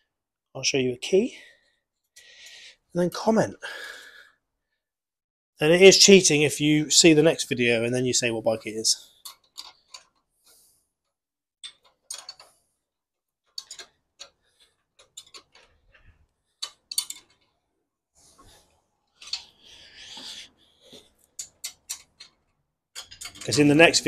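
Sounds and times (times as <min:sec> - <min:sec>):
metal jack clicks and clinks: 0:16.6 - 0:17.5, 0:23.0 - 0:23.9.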